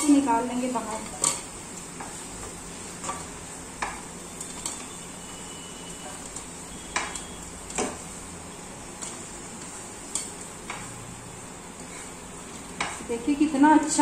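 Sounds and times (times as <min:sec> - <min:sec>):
oil sizzling in a pan: 0:00.0 - 0:14.0
spatula knocking in a pan: 0:03.0 - 0:04.1, 0:12.7 - 0:13.1.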